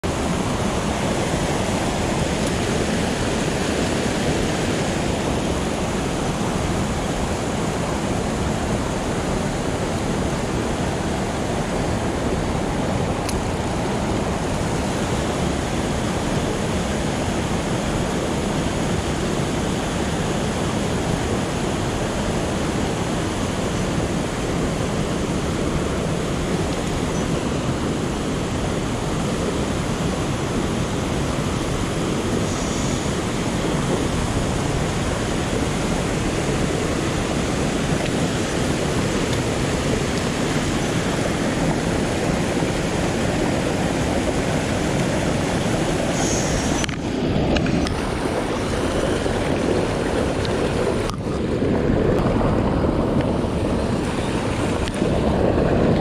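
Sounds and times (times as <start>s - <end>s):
stream rushing over rocks: 0.0s - 56.0s.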